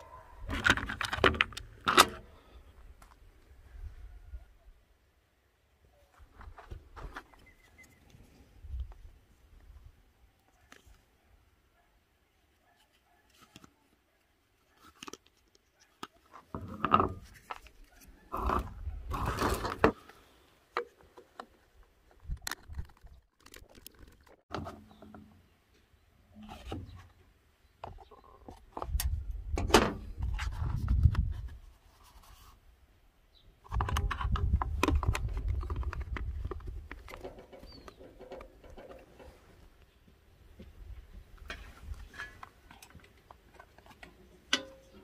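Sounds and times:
plastic parts scraping and clicking: 0.0 - 2.4, 14.6 - 25.2, 33.6 - 39.6, 41.4 - 45.0.

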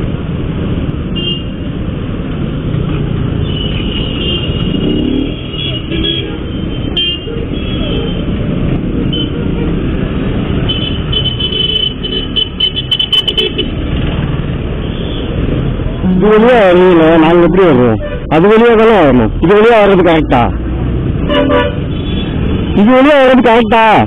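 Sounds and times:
vehicle horn toots: 21.3 - 22.4.

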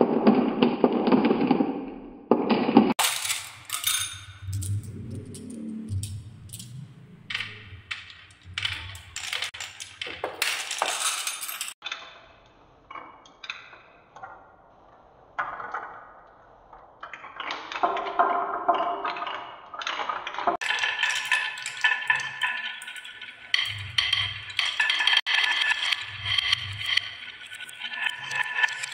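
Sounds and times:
marbles clicking on wooden tracks: 15.4 - 28.9
marbles rattling round spiral: 20.6 - 28.9.

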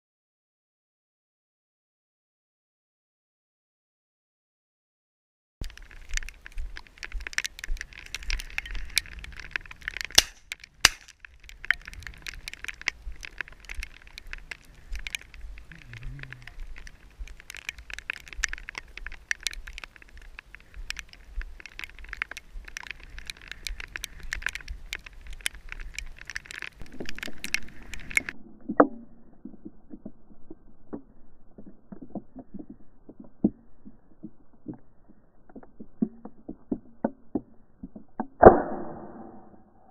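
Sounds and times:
rain crackling on camera housing: 5.6 - 38.2
sharp click: 10.1 - 11.8, 38.2 - 39.6.

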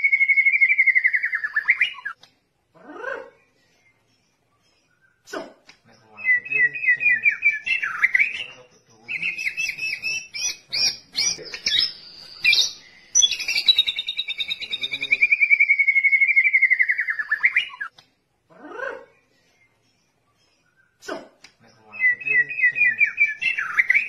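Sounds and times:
bird singing whistled notes: 0.0 - 2.2, 6.0 - 17.9, 21.8 - 24.0.

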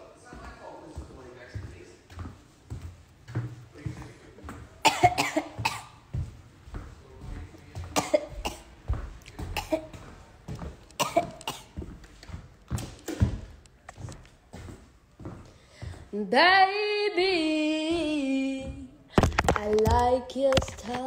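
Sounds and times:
woman coughing: 4.8 - 6.0, 8.0 - 8.7, 9.5 - 9.9, 11.0 - 11.8.

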